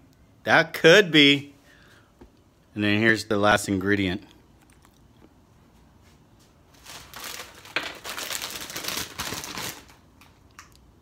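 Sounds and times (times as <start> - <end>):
chip bag crinkling: 6.7 - 10.8.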